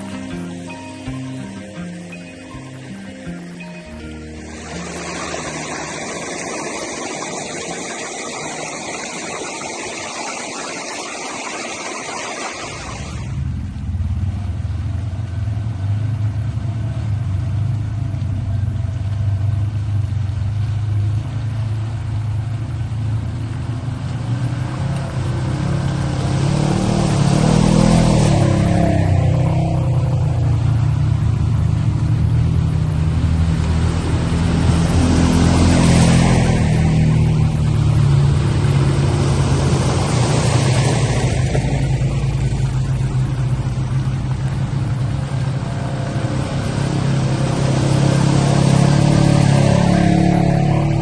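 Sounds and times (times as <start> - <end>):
utility vehicle engine running: 0.0 - 51.0
steady hissing rush: 0.1 - 13.4.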